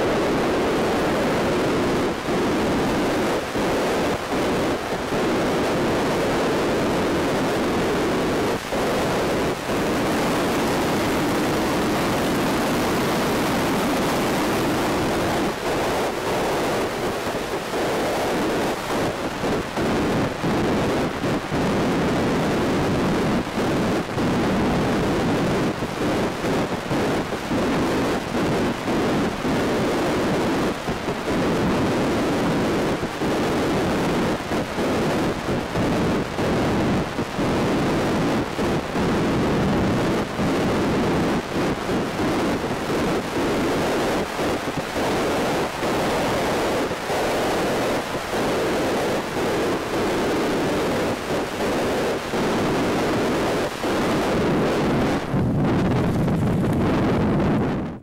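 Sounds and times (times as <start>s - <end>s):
wind rushing over microphone: 0.0s - 58.0s.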